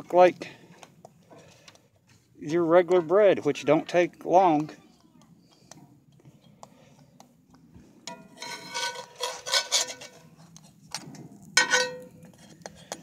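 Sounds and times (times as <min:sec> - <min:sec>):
metal spatula scraping skillet: 0:08.1 - 0:10.6, 0:11.6 - 0:12.6.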